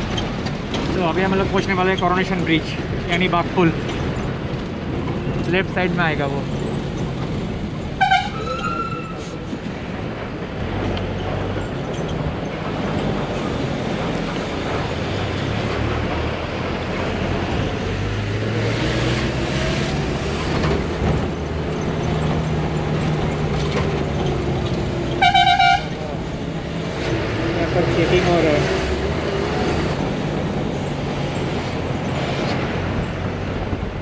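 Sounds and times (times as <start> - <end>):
bus diesel engine running: 0.0 - 34.0
road noise: 0.0 - 34.0
loud horn blast: 8.0 - 9.0, 25.2 - 26.0.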